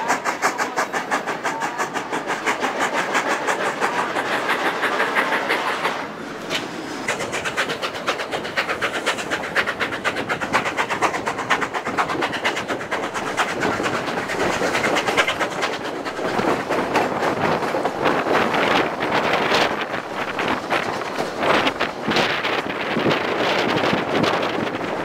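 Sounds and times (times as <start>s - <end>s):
train wheels clattering on rails: 0.0s - 25.0s.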